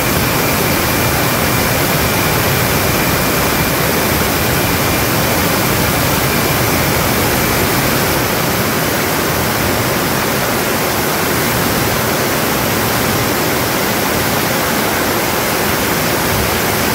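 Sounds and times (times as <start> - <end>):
jet exhaust rushing: 0.0 - 14.5
faint high whine: 0.0 - 16.9.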